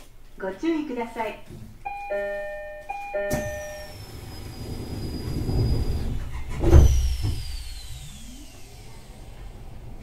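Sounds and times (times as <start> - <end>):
door chime: 1.8 - 4.4
train doors thumping shut: 3.2 - 3.9.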